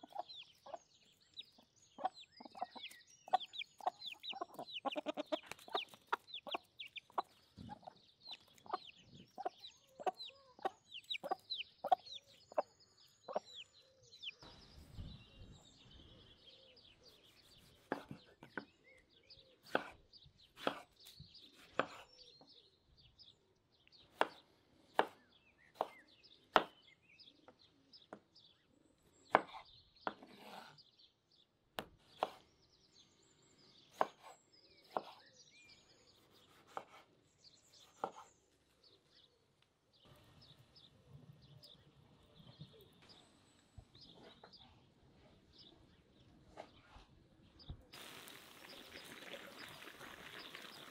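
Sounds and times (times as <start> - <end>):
birds chirping: 0.0 - 50.9
knife chopping on wooden board: 17.6 - 18.7, 19.6 - 20.0, 20.6 - 21.0, 21.6 - 22.1, 25.0 - 25.2, 25.8 - 26.8, 29.3 - 30.7, 31.8 - 32.4, 34.9 - 35.2, 36.5 - 37.1, 37.9 - 38.3.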